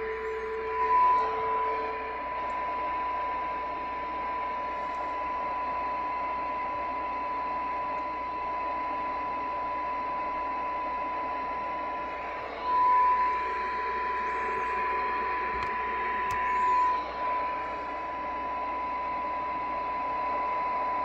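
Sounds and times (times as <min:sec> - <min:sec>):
steady test tone from speaker: 0:00.0 - 0:21.0
radio receiver hiss: 0:12.1 - 0:18.2.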